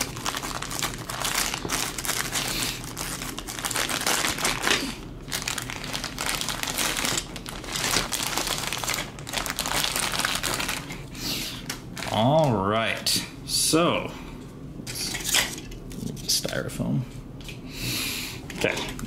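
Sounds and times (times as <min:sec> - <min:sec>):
plastic bag crinkling: 0:00.0 - 0:12.7.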